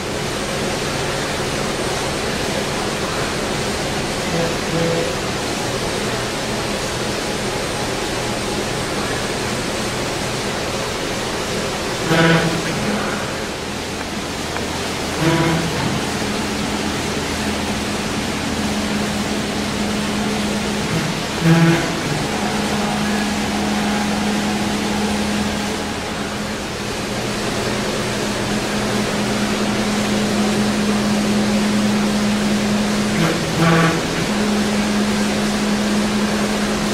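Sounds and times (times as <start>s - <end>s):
cnc router hissing: 4.2s - 5.8s, 11.8s - 36.9s.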